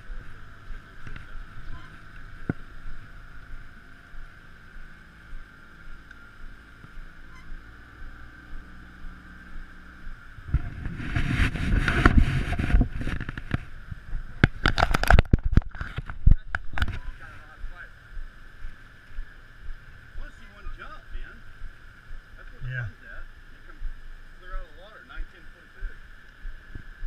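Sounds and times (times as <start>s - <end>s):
wind buffeting microphone: 7.9s - 20.3s.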